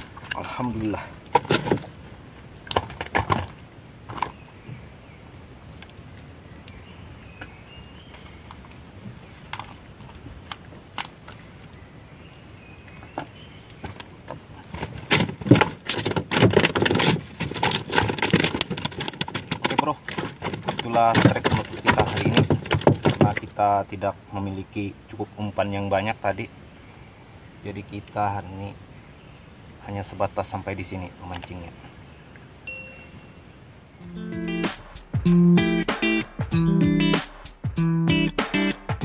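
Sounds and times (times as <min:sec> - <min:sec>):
gear rattling and clattering: 0:14.7 - 0:23.5
gear knocking and clicking: 0:14.8 - 0:23.4.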